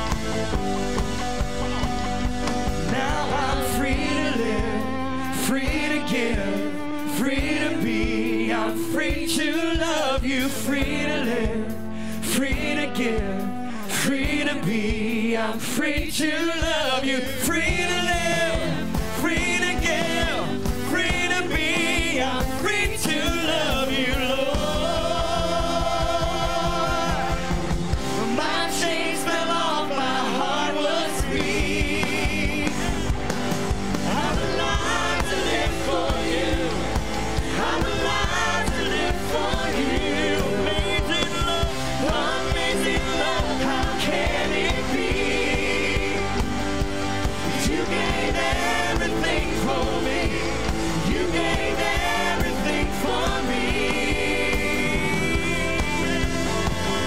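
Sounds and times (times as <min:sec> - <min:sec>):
electric bass guitar: 0:00.0 - 0:09.7, 0:29.5 - 0:57.0
keyboard: 0:00.0 - 0:57.0
voices singing together: 0:00.0 - 0:57.0.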